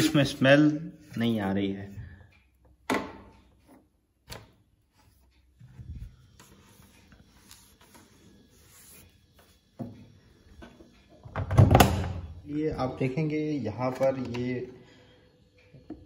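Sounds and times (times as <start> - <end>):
washing machine door clicks: 2.8 - 3.3, 11.2 - 12.3.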